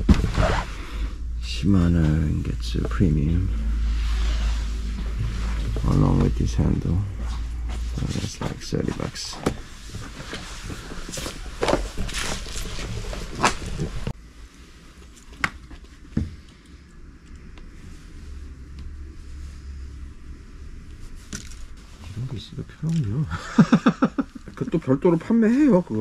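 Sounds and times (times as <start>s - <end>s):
plastic packaging rustling: 9.8s - 14.1s.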